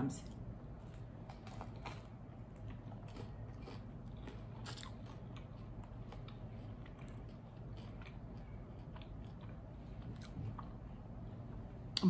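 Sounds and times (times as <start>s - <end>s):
crunchy chewing: 0.3s - 11.6s.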